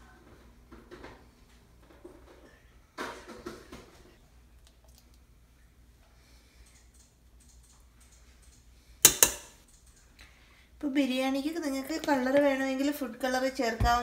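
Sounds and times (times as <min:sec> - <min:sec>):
kitchen utensils clicking: 0:09.0 - 0:09.6.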